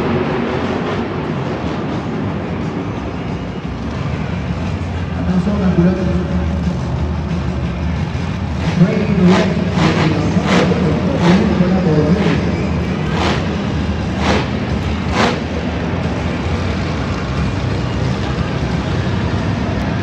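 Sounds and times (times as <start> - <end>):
monster truck engines rumbling: 0.0 - 20.0
voice over loudspeaker: 5.2 - 6.9, 8.6 - 13.3.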